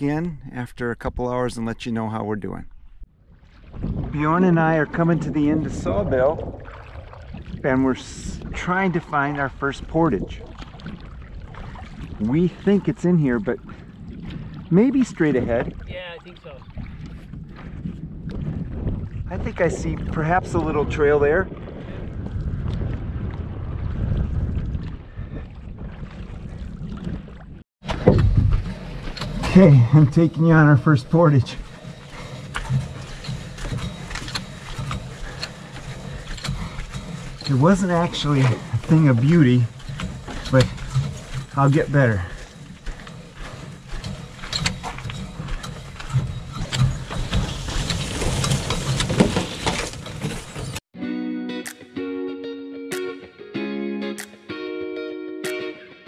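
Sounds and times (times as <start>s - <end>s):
wind buffeting microphone: 2.5s - 50.8s
canoe hull knocking and creaking: 3.3s - 50.8s
footsteps: 30.9s - 50.8s
electric guitar music: 51.0s - 56.0s.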